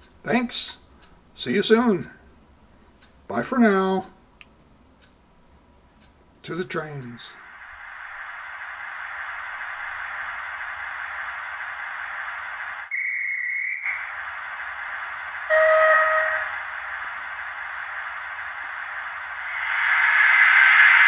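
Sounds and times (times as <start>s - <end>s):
steam hissing from speaker: 7.2s - 12.9s, 13.9s - 21.0s
high-pitched train whistle: 15.5s - 16.6s
low train whistle: 15.5s - 16.6s.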